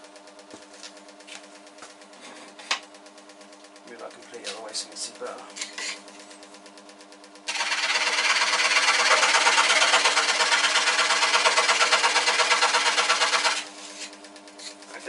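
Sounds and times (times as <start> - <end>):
saw motor humming: 7.5 - 15.0
scroll saw blade rasping through wood: 7.6 - 13.7.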